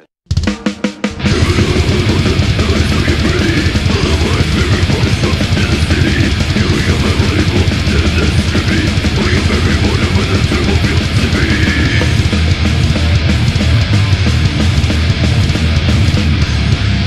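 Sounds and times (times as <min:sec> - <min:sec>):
death metal band playing: 0:00.3 - 0:17.0
drum hits: 0:00.3 - 0:17.0.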